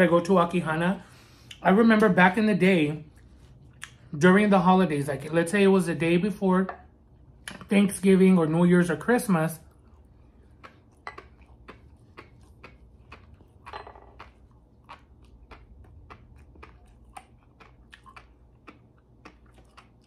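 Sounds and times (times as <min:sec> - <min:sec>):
mouth chewing clicks and pops: 0:10.0 - 0:20.0.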